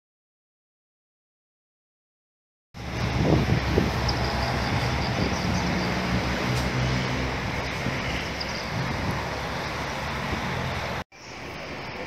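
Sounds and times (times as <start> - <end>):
low engine hum: 2.8 - 11.0
wind on microphone: 2.8 - 11.0
road traffic: 2.8 - 12.0.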